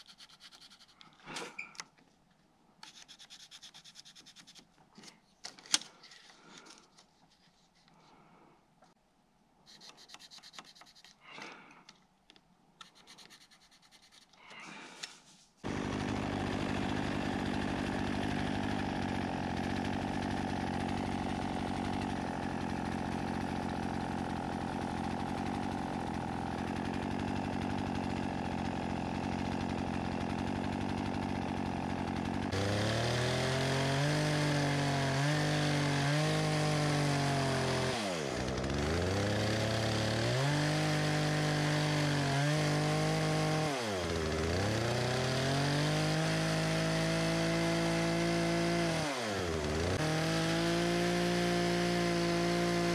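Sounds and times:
pencil scratching on wood: 0.0s - 1.1s, 2.8s - 4.7s, 9.7s - 11.2s, 12.8s - 14.4s
chainsaw cutting a log: 15.6s - 52.9s.

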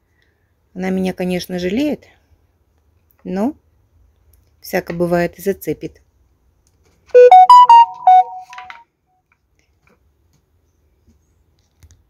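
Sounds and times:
electronic ringtone jingle: 7.2s - 8.7s.

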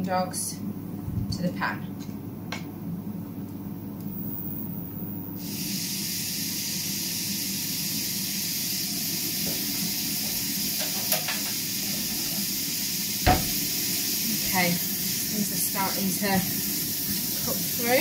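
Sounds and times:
sausage sizzling in frying pan: 5.4s - 18.0s.

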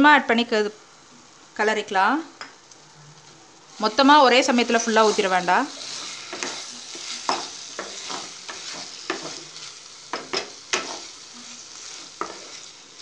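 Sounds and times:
food sizzling in a pan: 3.5s - 13.0s
spatula scraping a pan: 3.8s - 13.0s.

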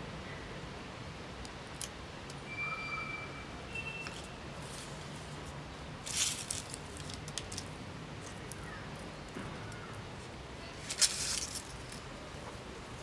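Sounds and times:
dry leaves crackling: 6.0s - 10.0s, 10.6s - 12.3s.

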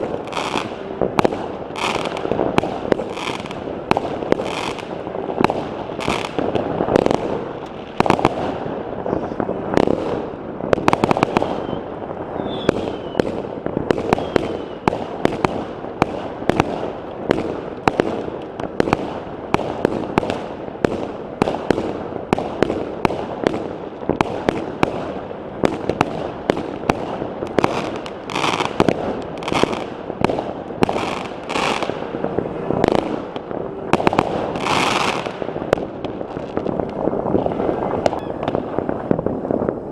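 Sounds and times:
fireworks and firecrackers bangs: 0.0s - 39.9s
falling whistle: 11.6s - 13.2s, 14.2s - 14.9s.

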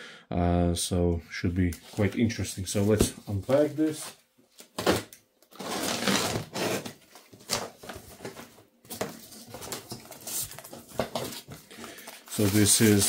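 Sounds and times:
cardboard and strap scraping: 5.6s - 7.0s.

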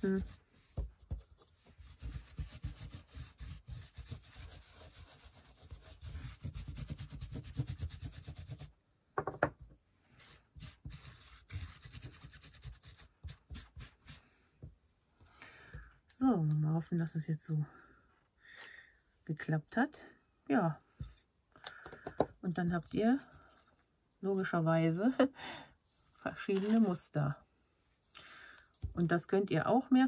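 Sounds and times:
tool scrubbing over paper: 1.1s - 8.7s, 10.1s - 14.2s.

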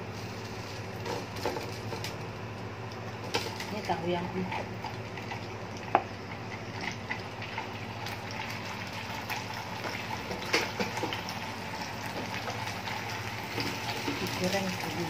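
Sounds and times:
low steady hum: 0.0s - 15.0s
tofu sizzling in hot oil: 7.0s - 15.0s.

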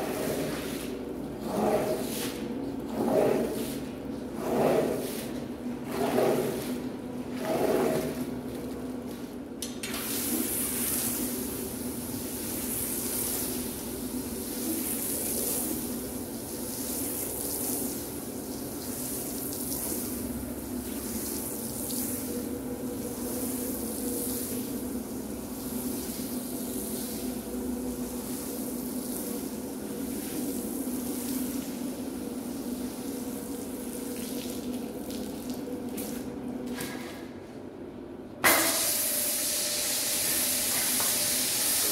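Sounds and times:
squeegee scraping tile: 0.1s - 8.2s
water spraying hiss: 38.4s - 41.9s.

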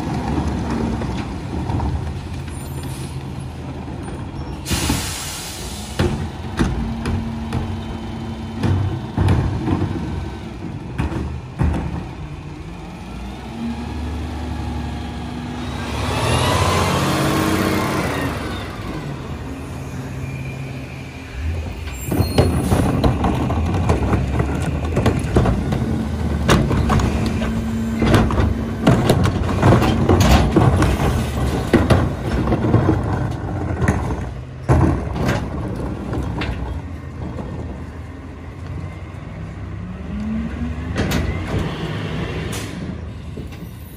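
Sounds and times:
garbage truck engine running: 0.0s - 43.9s
knocks and clanks: 6.0s - 12.4s, 21.8s - 37.9s, 40.8s - 41.9s.

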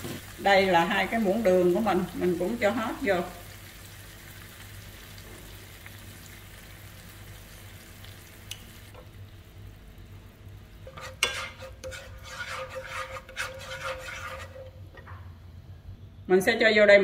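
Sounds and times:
chopsticks stirring sauce in a pan: 10.9s - 14.7s.

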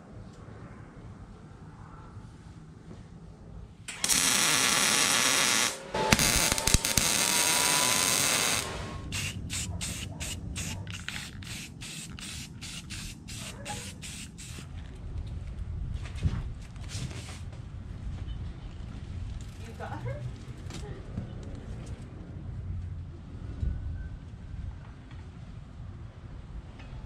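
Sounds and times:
welding arc crackling hiss: 3.9s - 14.6s.

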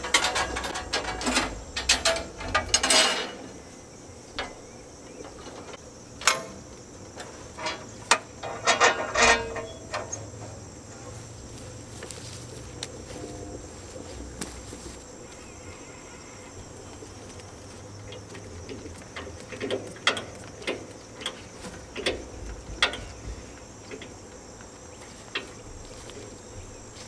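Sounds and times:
metal clicks and clacks: 0.0s - 3.5s, 5.2s - 10.6s, 18.1s - 23.2s
faint low hum: 0.0s - 27.0s.

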